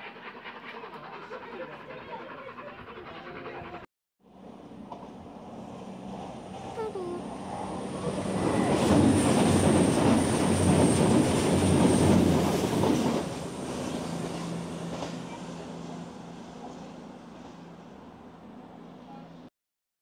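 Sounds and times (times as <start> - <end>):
train diesel engines humming: 0.0 - 19.4
train wheels rumbling on track: 4.4 - 18.1.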